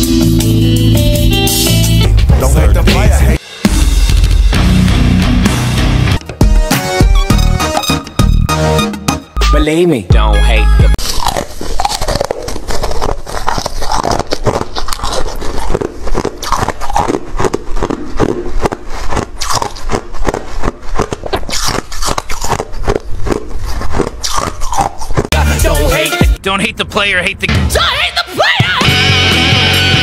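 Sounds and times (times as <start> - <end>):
crunching and scraping clicks: 11.0 - 25.3.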